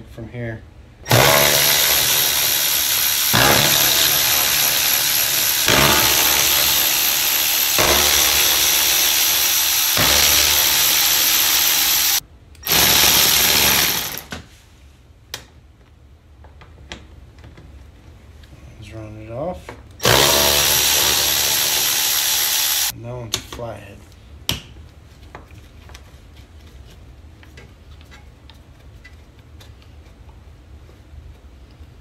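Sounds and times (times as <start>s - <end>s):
cordless ratchet running: 1.1s - 14.3s, 20.0s - 22.9s.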